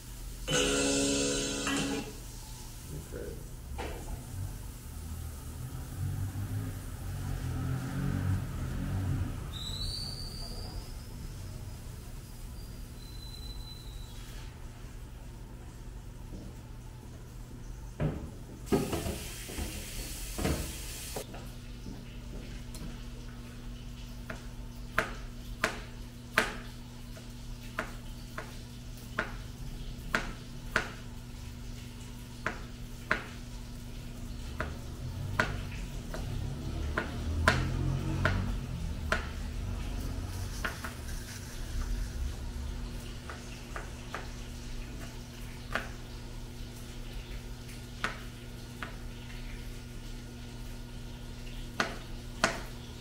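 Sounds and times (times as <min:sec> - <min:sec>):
hiss: 0:18.7 - 0:21.2
knife chopping vegetables: 0:24.3 - 0:26.6, 0:27.7 - 0:29.4, 0:30.1 - 0:31.0, 0:32.4 - 0:33.4, 0:34.5 - 0:39.5, 0:40.3 - 0:42.1.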